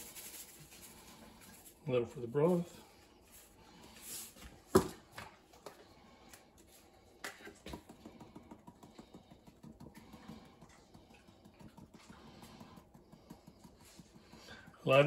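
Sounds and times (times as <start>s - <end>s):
seasoning shaker rattling: 0.0s - 1.7s.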